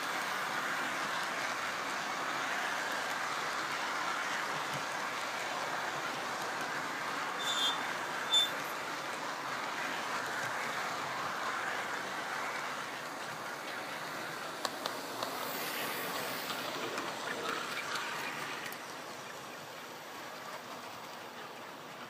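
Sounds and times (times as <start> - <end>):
model train whirring and rattling: 0.0 - 22.0
wheels clicking on rail joints: 0.0 - 22.0
high squeaks: 7.4 - 8.6.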